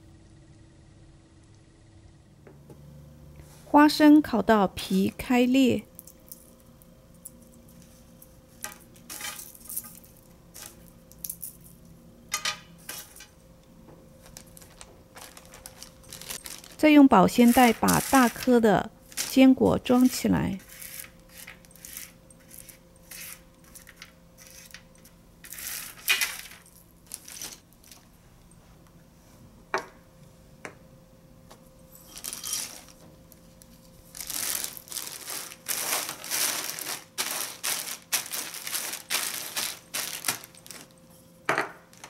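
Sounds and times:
nuts clicking into plastic bag: 0:14.2 - 0:16.8, 0:17.4 - 0:18.5, 0:34.1 - 0:40.9
plastic bag crinkling: 0:14.2 - 0:24.8, 0:25.4 - 0:28.0, 0:32.0 - 0:41.1.

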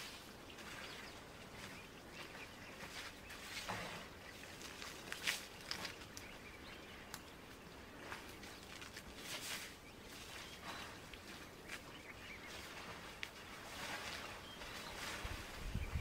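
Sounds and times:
bird chirp: 0:00.0 - 0:16.0
elephants splashing in mud water: 0:12.6 - 0:15.6.

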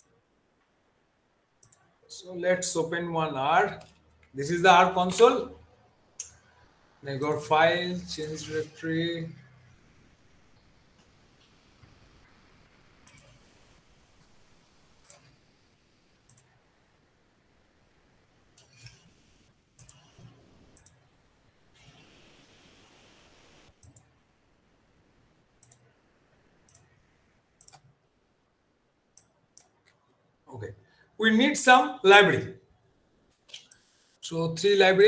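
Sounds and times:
computer mouse clicks: 0:01.6 - 0:01.9, 0:07.3 - 0:07.5, 0:13.0 - 0:13.5, 0:15.0 - 0:15.4, 0:16.2 - 0:16.6, 0:18.6 - 0:19.1, 0:19.8 - 0:21.1, 0:23.7 - 0:24.2, 0:25.6 - 0:25.9, 0:26.6 - 0:26.9, 0:27.6 - 0:27.9, 0:33.3 - 0:34.3.

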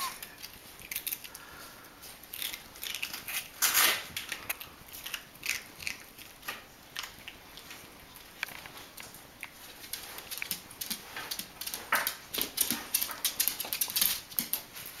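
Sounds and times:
dog claws tapping on tile: 0:08.4 - 0:15.0.

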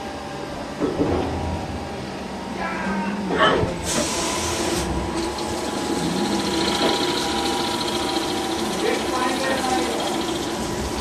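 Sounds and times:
coolant spraying: 0:04.0 - 0:11.0
lathe machine whine and hum: 0:04.1 - 0:11.0.

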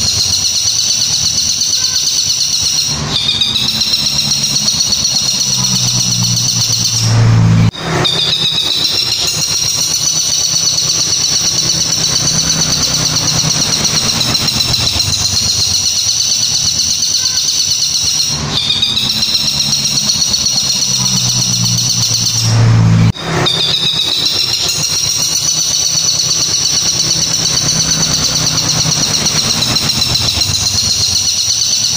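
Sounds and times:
bird singing rapid chattering song: 0:00.0 - 0:22.5, 0:23.4 - 0:31.9
loud noisy burst: 0:00.0 - 0:31.7.

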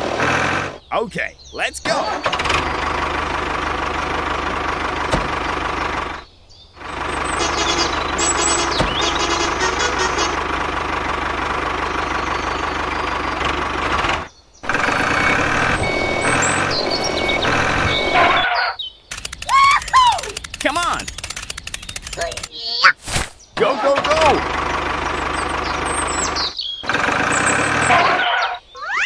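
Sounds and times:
tractor engine chugging: 0:02.3 - 0:18.4, 0:23.8 - 0:28.2.

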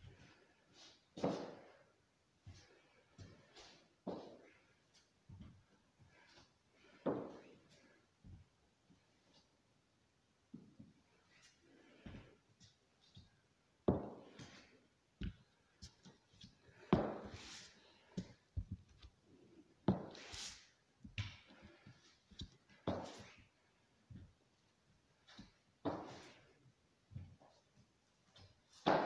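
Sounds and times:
high heel on wooden boards: 0:13.9 - 0:14.2, 0:16.7 - 0:17.4, 0:25.3 - 0:26.2, 0:28.8 - 0:29.0.

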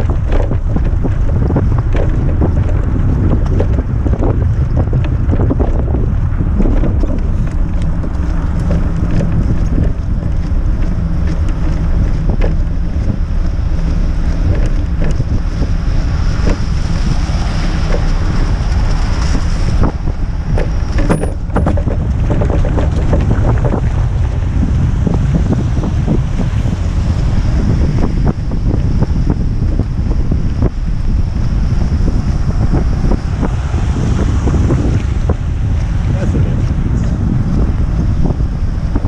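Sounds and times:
small clicks and rattles: 0:00.0 - 0:24.0
tyres on wet slushy road: 0:00.0 - 0:39.0
wind buffeting microphone: 0:00.0 - 0:39.0.

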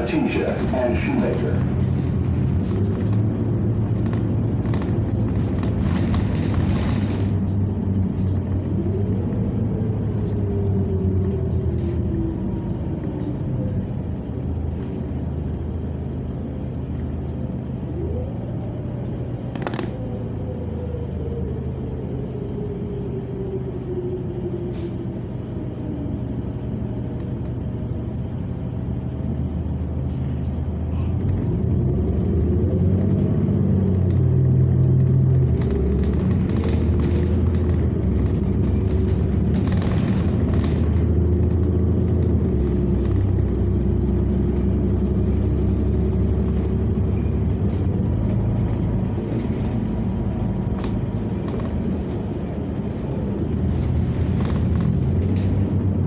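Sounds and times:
bus engine rumble and whine: 0:00.0 - 0:56.0
rattles and sharp clicks: 0:19.5 - 0:20.1.

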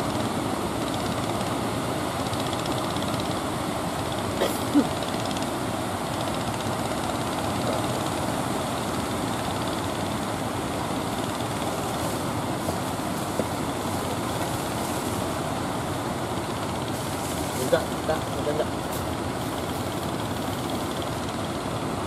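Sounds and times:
surf waves breaking on beach: 0:00.0 - 0:22.0.

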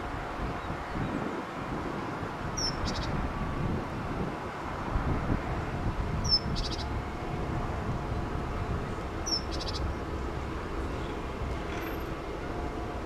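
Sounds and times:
small bird chirp and trill: 0:02.6 - 0:03.2, 0:06.2 - 0:07.0, 0:09.2 - 0:10.0.

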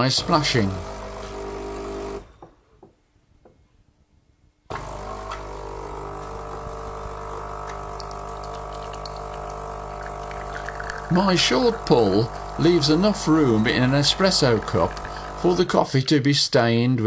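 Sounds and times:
espresso machine hum: 0:00.2 - 0:02.2, 0:04.7 - 0:15.7
vibratory pump buzzing: 0:04.7 - 0:15.6.

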